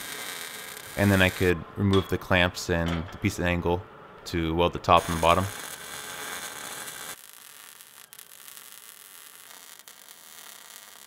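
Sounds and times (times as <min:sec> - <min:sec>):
arc welding crackling hiss: 0:00.0 - 0:01.6, 0:04.9 - 0:11.0.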